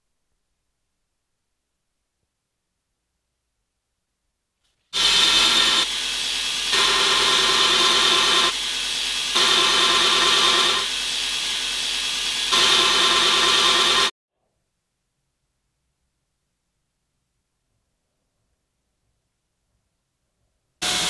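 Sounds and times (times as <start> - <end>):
belt grinder grinding steel: 4.9 - 14.1.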